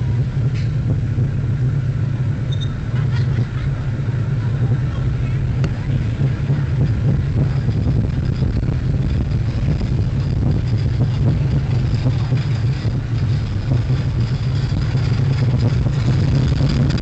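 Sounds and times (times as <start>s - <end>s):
roller coaster wheels on rails: 0.0s - 17.0s.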